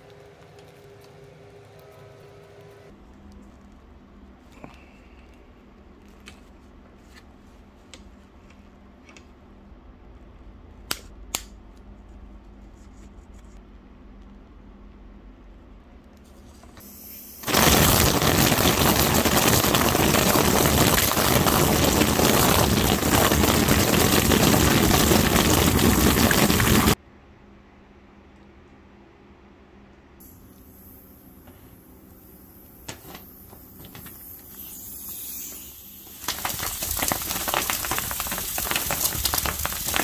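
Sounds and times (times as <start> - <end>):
tube flailing against foil: 17.4 - 27.0, 36.0 - 40.0.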